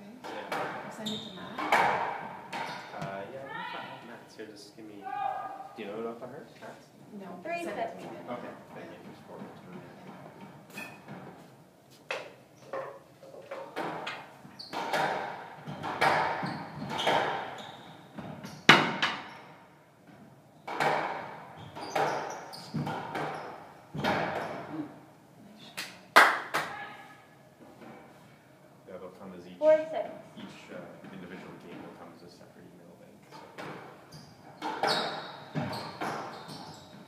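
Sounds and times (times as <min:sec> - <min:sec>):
squash ball hitting racquets and walls: 0:00.2 - 0:03.3, 0:12.1 - 0:24.8, 0:33.4 - 0:37.0.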